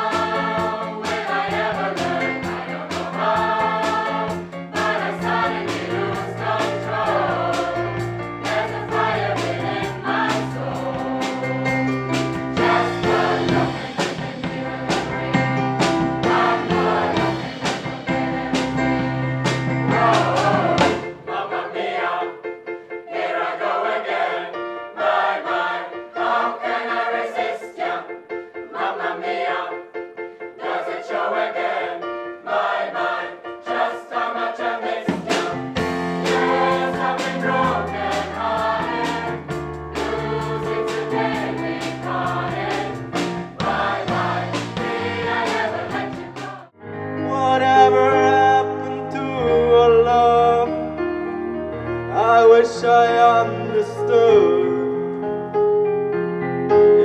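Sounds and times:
bass and beat accompaniment: 0:00.0 - 0:21.2, 0:35.1 - 0:46.7
choir singing a pop song: 0:00.0 - 0:46.8, 0:52.1 - 0:54.9.

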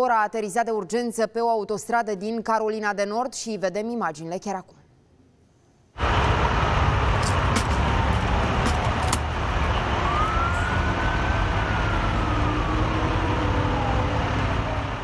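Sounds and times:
emergency siren wailing: 0:06.0 - 0:15.0.

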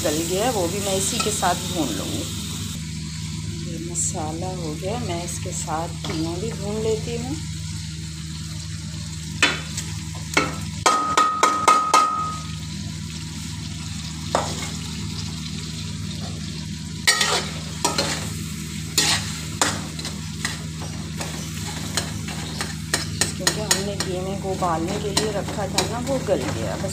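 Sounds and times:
masala frying in a pan: 0:00.0 - 0:26.9
spoon scraping and knocking pan: 0:17.1 - 0:18.3, 0:19.0 - 0:24.2.

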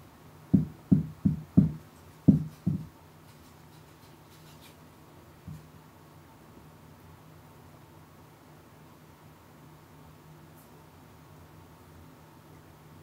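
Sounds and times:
cat's tail thumping on wood: 0:00.6 - 0:02.9.

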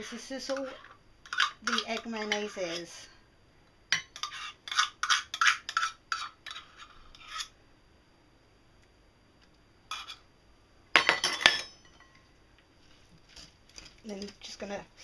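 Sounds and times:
utensil scraping metal cups: 0:00.0 - 0:03.0, 0:04.2 - 0:07.5.

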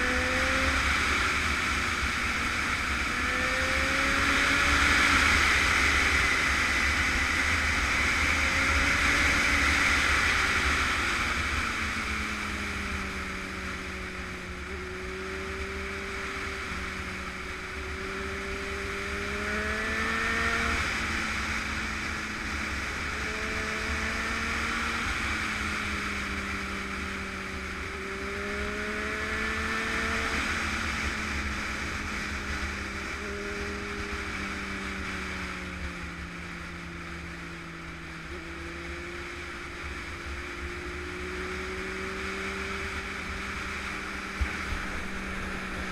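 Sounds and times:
motorcycle engine revving: 0:00.0 - 0:45.9
wind rushing on microphone: 0:41.5 - 0:45.9.

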